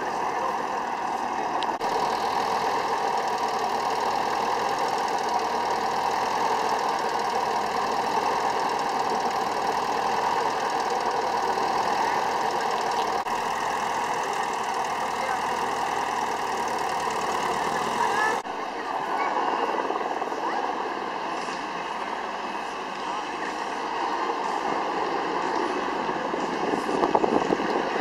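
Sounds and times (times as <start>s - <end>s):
tractor engine running: 0.0s - 18.4s.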